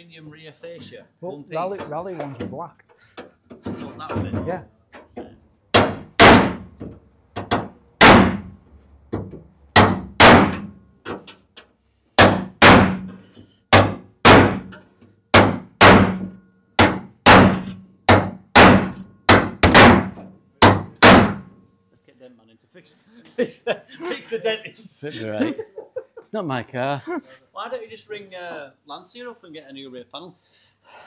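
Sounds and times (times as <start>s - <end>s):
hammer ringing on metal panel: 5.7s - 6.7s, 13.7s - 14.7s, 15.3s - 21.5s.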